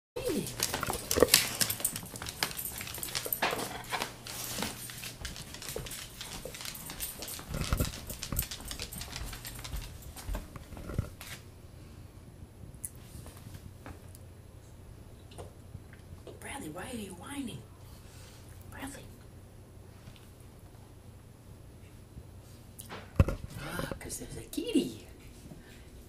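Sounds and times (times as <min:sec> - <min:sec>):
scuffling and clicking: 0:00.3 - 0:11.4.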